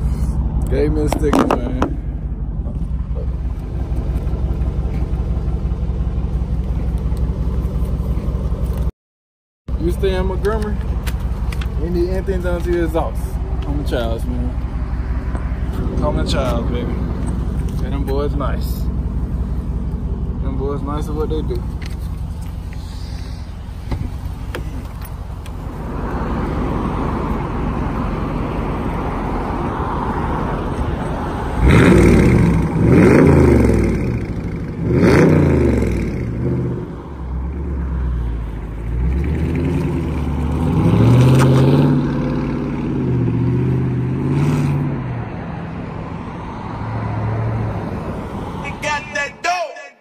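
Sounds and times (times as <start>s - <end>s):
car exhaust idling rumble: 0.0s - 8.9s, 9.7s - 40.6s
car engine revving: 9.7s - 49.0s
car accelerating away: 22.2s - 48.6s.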